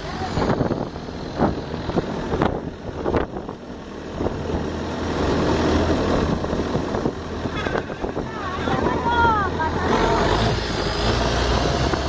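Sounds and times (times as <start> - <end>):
boat engine running: 0.0 - 12.0
water noise: 0.0 - 12.0
wind: 0.0 - 12.0.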